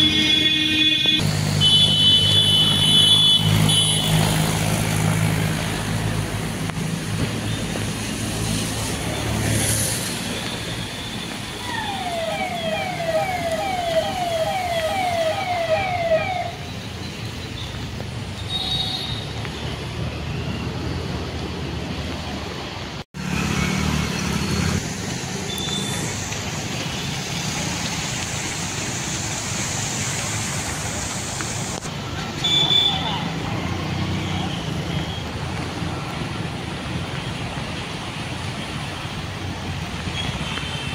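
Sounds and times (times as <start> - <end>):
vehicles driving through floodwater: 0.0 - 40.9
electronic siren wail: 11.6 - 16.7.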